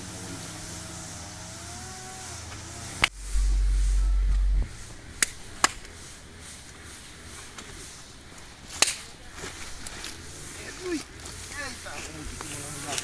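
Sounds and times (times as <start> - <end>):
deep microphone rumble: 3.1 - 6.0.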